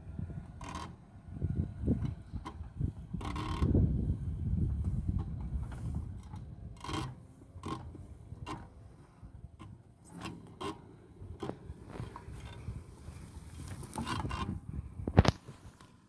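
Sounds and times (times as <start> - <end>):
footsteps crunching on dry grass: 11.8 - 14.0.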